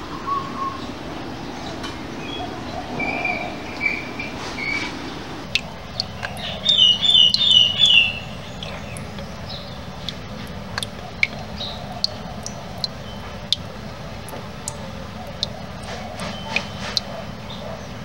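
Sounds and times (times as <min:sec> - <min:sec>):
bird chirping: 0:01.6 - 0:18.0
water dripping into plastic tub: 0:05.4 - 0:18.0.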